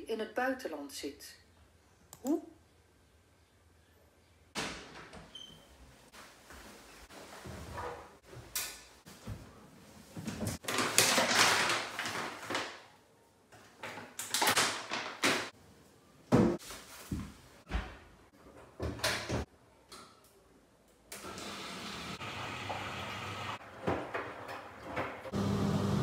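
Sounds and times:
clothes rustling: 0:05.7 - 0:10.6.

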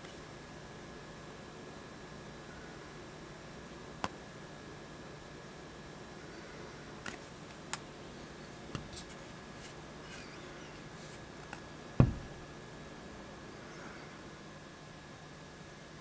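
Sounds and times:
camera handling thump: 0:12.0 - 0:12.3.

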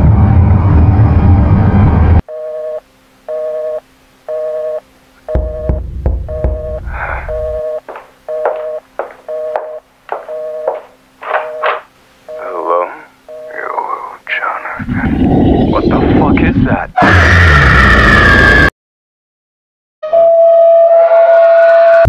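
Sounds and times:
low rumble: 0:00.0 - 0:02.2, 0:05.4 - 0:07.7
telephone busy signal: 0:02.3 - 0:12.7, 0:13.3 - 0:13.8
loud noise: 0:14.9 - 0:18.7.

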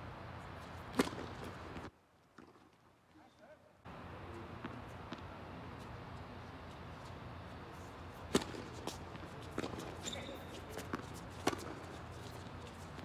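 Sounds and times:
high shoe squeak: 0:08.9 - 0:13.0.

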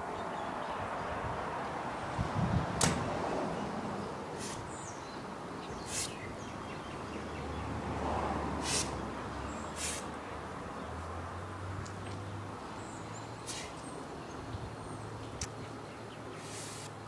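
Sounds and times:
steady outdoor hiss: 0:00.0 - 0:17.0
uniform swishes: 0:04.4 - 0:04.7, 0:05.9 - 0:06.2, 0:13.5 - 0:13.8.

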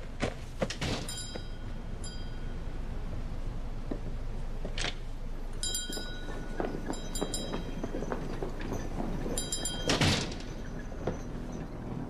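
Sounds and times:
low background rumble: 0:00.0 - 0:12.0
light bell-like ringing: 0:01.1 - 0:03.1, 0:05.6 - 0:10.8.

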